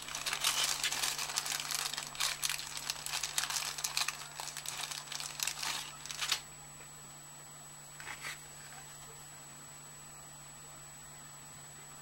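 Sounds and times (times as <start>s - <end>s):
crinkling and rustling materials: 0.0s - 6.4s.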